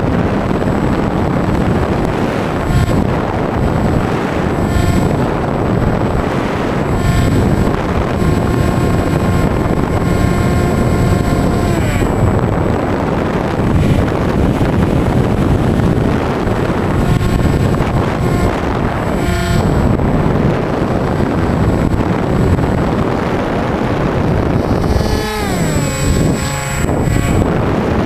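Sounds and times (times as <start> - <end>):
electric motor and propeller whine: 0.0 - 28.0
wind rushing over camera: 0.0 - 28.0.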